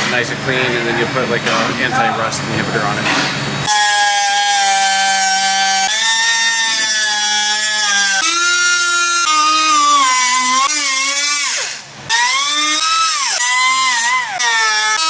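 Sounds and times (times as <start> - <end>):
cutoff wheel cutting metal: 3.1 - 15.0.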